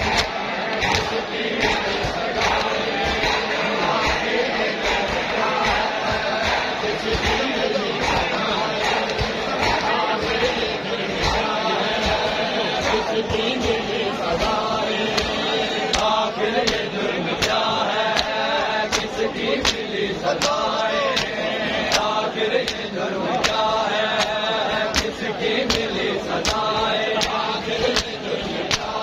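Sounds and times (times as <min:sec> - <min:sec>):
men chanting together: 0:00.0 - 0:29.0
hands slapping bare chests: 0:14.4 - 0:29.0.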